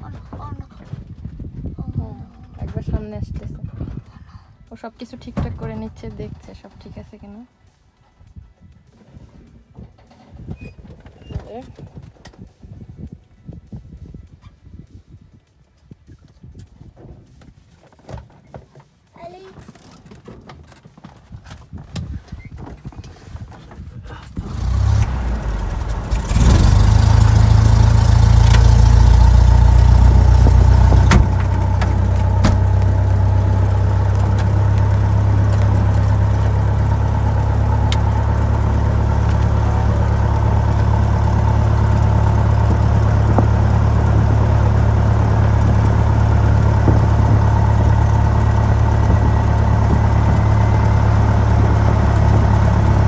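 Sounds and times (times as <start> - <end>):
light aircraft engine starting: 24.2 - 53.0
propeller engine drone: 24.4 - 53.0.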